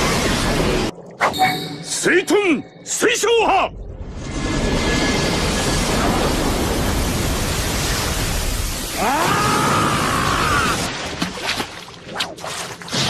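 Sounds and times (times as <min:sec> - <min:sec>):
huge wave of water roaring: 0:05.3 - 0:11.1.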